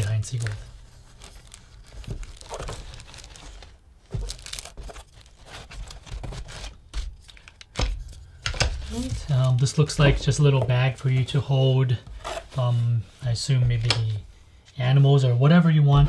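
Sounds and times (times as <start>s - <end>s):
tissue paper crinkling: 0.0s - 7.5s.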